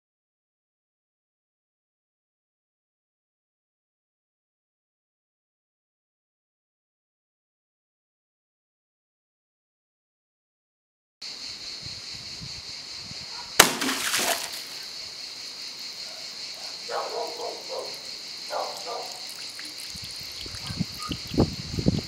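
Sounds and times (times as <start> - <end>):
water balloon popping: 13.6 - 14.8, 19.2 - 21.5
water splash: 13.6 - 14.8, 18.8 - 21.4.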